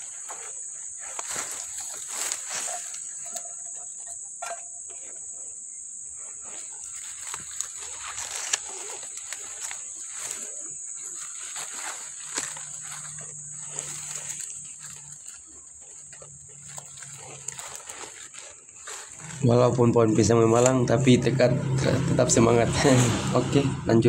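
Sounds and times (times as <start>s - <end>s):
tent bag rustling and crinkling: 0.0s - 3.5s, 6.2s - 19.5s
high insect drone: 0.0s - 24.0s.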